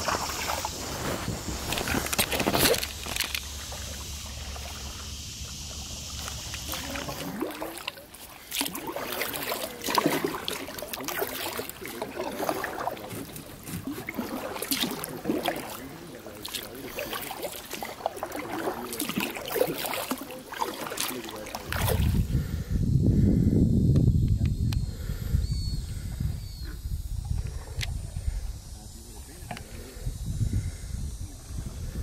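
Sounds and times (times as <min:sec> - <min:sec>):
paddle splashing in water: 0:00.0 - 0:22.3
wind rumble on microphone: 0:21.6 - 0:32.0.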